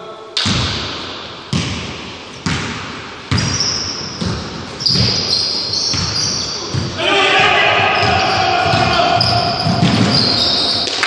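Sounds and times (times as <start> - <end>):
basketball bouncing on wooden floor: 1.5 - 7.0, 7.8 - 10.7.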